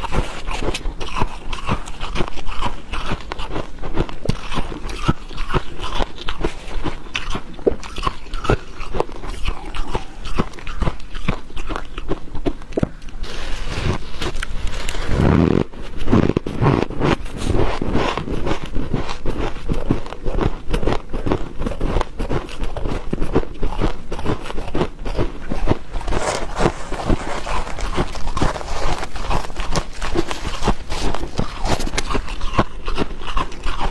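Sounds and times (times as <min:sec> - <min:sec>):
chewing crunchy frost: 0:00.0 - 0:33.9
gloved hands scraping frost: 0:13.2 - 0:18.2, 0:25.9 - 0:32.4.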